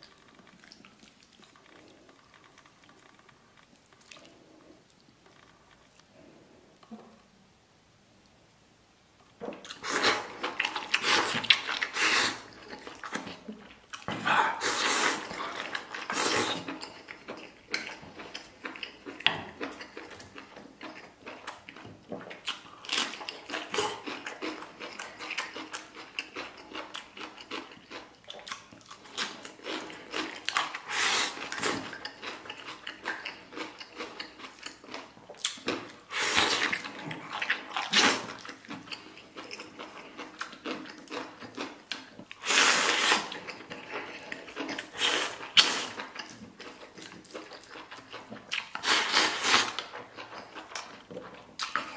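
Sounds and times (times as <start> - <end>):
wet chewing: 0.0 - 6.1, 9.4 - 51.9
person slurping food: 9.8 - 12.7, 14.1 - 16.8, 30.8 - 31.9, 36.1 - 38.4, 42.4 - 46.0, 48.7 - 49.9.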